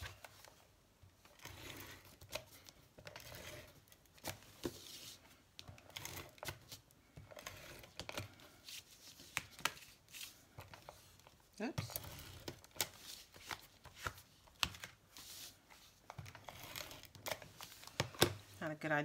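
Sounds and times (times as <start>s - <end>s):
adhesive roller rasping on paper: 1.3s - 2.3s, 3.0s - 3.9s, 11.8s - 13.4s, 15.2s - 17.9s.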